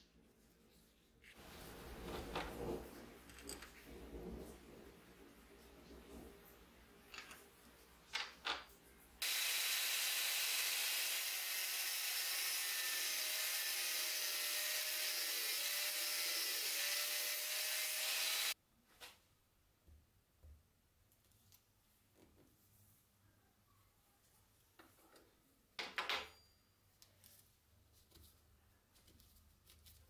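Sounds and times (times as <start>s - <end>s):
angle grinder grinding steel: 9.2s - 18.6s.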